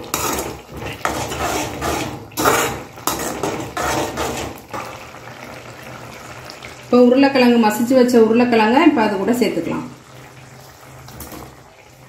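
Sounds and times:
metal spoon stirring and scraping gravy: 0.0 - 5.4.

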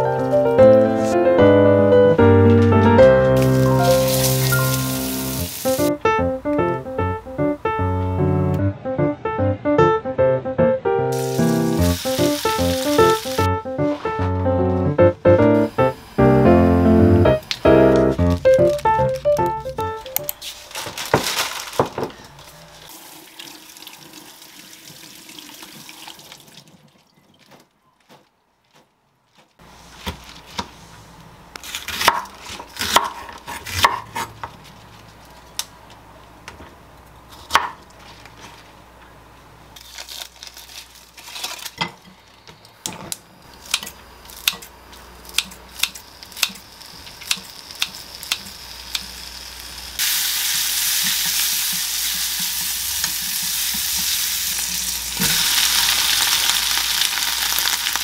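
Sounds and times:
bacon sizzling in a pan: 3.4 - 5.9, 11.1 - 13.5, 45.7 - 58.0
plastic bag rustling: 17.5 - 22.9
knife chopping on wooden board: 31.9 - 34.3.

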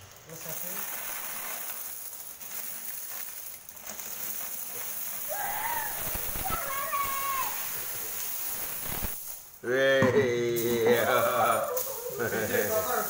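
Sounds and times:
coins pouring and clattering: 0.0 - 9.6, 10.6 - 13.0
person calling out: 5.3 - 7.7.

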